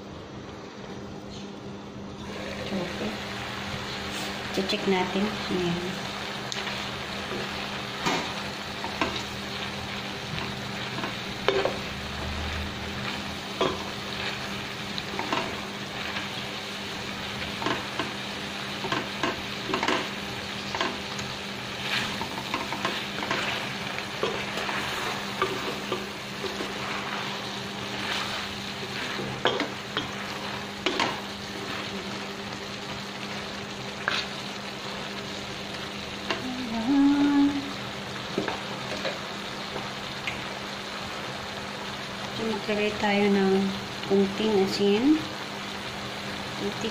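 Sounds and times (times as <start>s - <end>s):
food sizzling in a pot: 2.2s - 46.9s
spatula scraping a pot: 21.8s - 31.9s.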